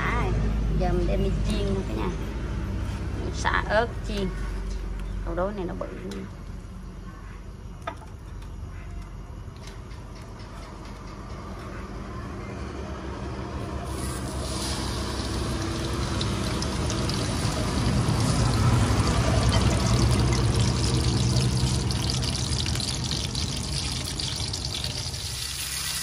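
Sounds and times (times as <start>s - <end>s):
fish sizzling in hot oil: 13.9s - 26.0s.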